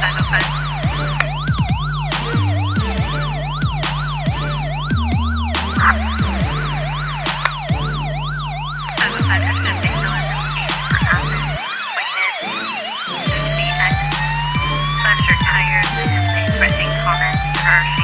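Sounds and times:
deep bass notes: 0:00.0 - 0:11.6, 0:13.3 - 0:18.0
siren-like electronic wail: 0:00.0 - 0:18.0.

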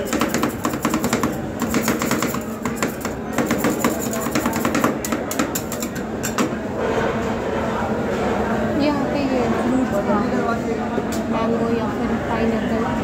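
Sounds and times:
metal spatulas tapping on steel plate: 0:00.0 - 0:06.5.

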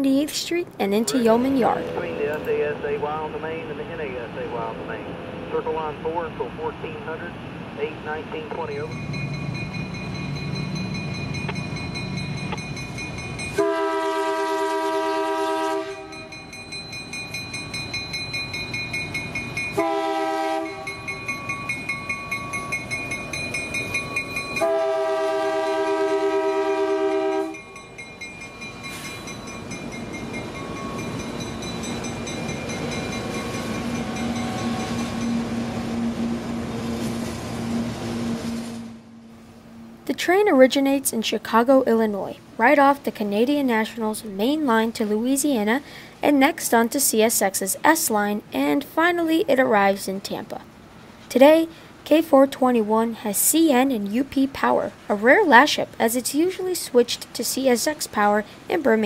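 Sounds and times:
bell ringing: 0:08.7 - 0:13.6, 0:16.1 - 0:19.8, 0:20.6 - 0:24.7, 0:27.3 - 0:35.5
locomotive air horn blasts: 0:13.6 - 0:16.4, 0:19.8 - 0:21.0, 0:24.6 - 0:27.6
train wheels clicking on rail joints: 0:27.1 - 0:35.8.

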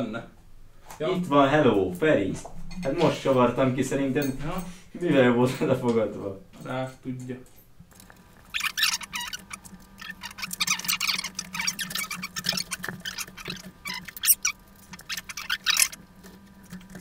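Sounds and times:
chair parts clicking and scraping: 0:07.5 - 0:17.0.

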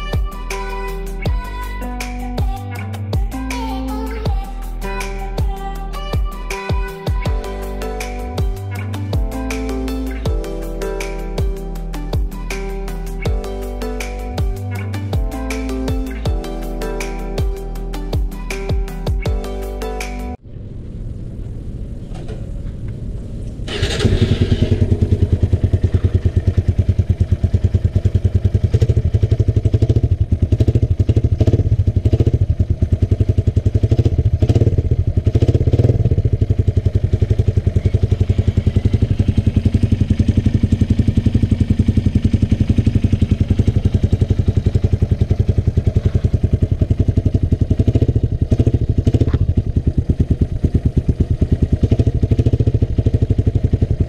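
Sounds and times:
motorcycle engine starting and idling: 0:20.3 - 0:54.0.

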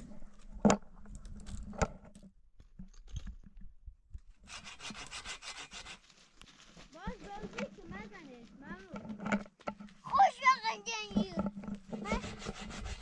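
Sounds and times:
fast even rasping: 0:10.1 - 0:13.0.

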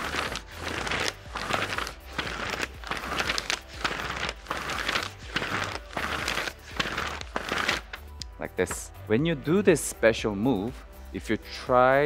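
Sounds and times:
paper strip scraping over table edge: 0:00.0 - 0:08.2.

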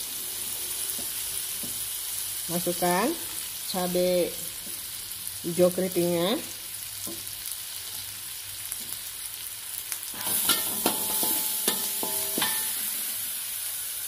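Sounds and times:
paste sizzling in hot oil: 0:00.0 - 0:14.0
metal spatula scraping wok: 0:10.1 - 0:13.2.

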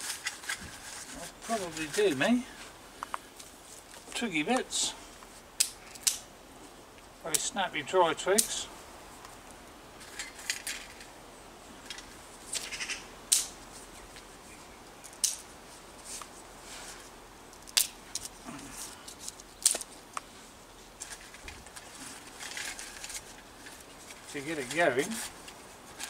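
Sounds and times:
dry twigs snapping: 0:05.5 - 0:06.3, 0:11.9 - 0:14.3, 0:15.0 - 0:15.5, 0:17.5 - 0:18.4, 0:19.0 - 0:20.3
twigs clattering into stove: 0:05.5 - 0:06.3, 0:08.3 - 0:08.7, 0:09.4 - 0:11.1, 0:17.5 - 0:20.3, 0:20.9 - 0:26.0.

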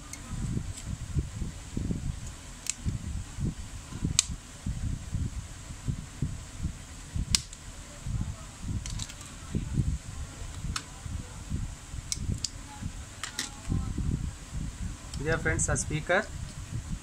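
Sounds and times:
plastic clips snapping: 0:02.6 - 0:02.9, 0:07.3 - 0:07.6, 0:08.8 - 0:09.3, 0:12.1 - 0:12.6, 0:13.2 - 0:13.7.

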